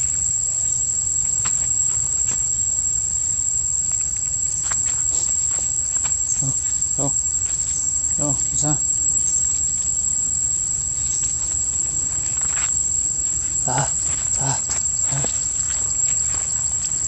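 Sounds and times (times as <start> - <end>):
high-pitched insect drone: 0.0 - 17.0
short insect calls: 0.0 - 17.0.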